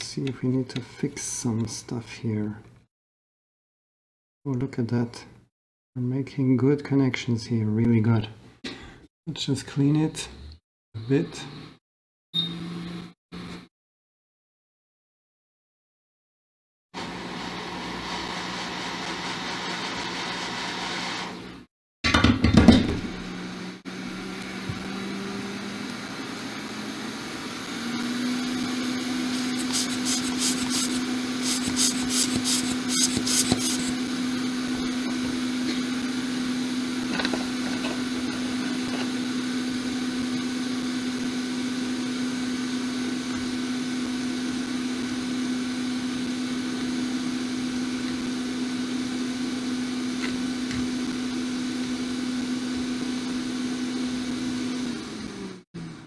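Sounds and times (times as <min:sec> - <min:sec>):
small electric motor humming: 0:28.4 - 0:34.0.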